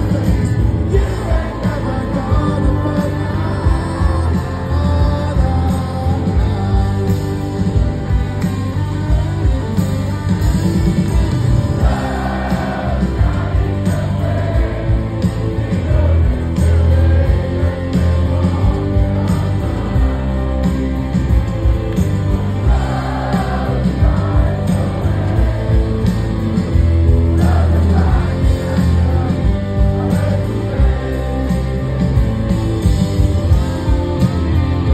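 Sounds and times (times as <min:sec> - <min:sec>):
person singing: 0:00.0 - 0:07.8
live rock band playing: 0:00.0 - 0:34.9.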